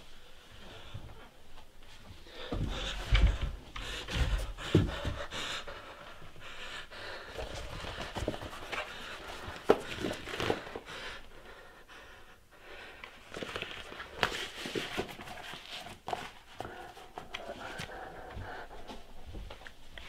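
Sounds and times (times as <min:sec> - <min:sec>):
person panting: 0:02.0 - 0:13.2, 0:16.5 - 0:19.6
rubber mask rustling: 0:07.1 - 0:11.4, 0:13.0 - 0:20.0.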